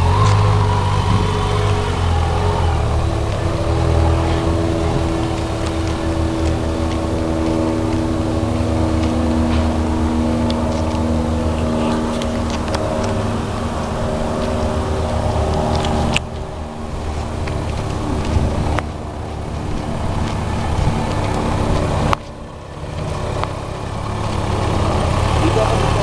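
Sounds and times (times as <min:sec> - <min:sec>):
vehicle engine running: 0:00.0 - 0:26.0.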